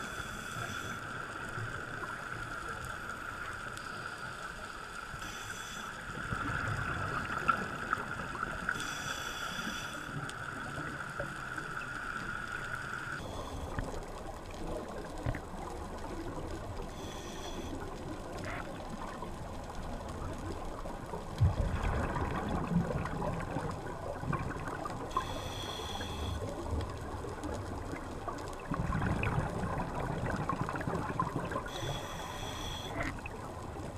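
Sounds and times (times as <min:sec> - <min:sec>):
diver breathing through regulator: 0:00.0 - 0:01.4, 0:08.7 - 0:10.2, 0:25.1 - 0:26.4, 0:31.6 - 0:33.2
rumbling bubbles: 0:18.7 - 0:25.1, 0:26.7 - 0:31.8.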